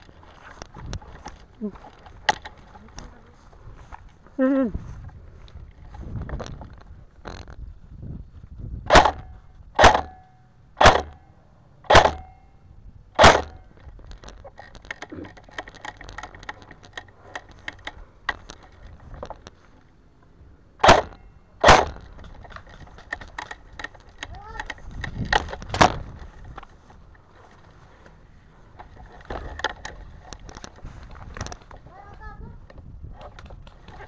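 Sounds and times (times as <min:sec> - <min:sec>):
airsoft rifle shots: 0:08.9 - 0:11.2, 0:11.8 - 0:12.4, 0:13.2 - 0:13.7, 0:20.8 - 0:22.2
metallic ring: 0:09.2 - 0:12.7, 0:20.8 - 0:21.6.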